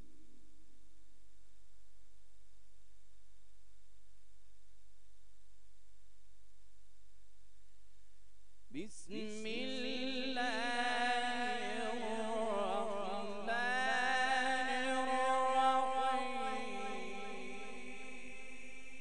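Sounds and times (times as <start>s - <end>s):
man reciting melodically: 8.8s - 19.0s.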